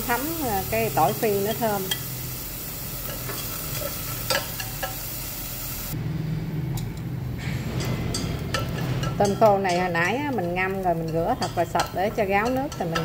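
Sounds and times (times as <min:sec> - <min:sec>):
shrimp sizzling in hot oil: 0:00.0 - 0:06.0, 0:08.5 - 0:13.0
stirring clicks against pot: 0:08.1 - 0:13.0.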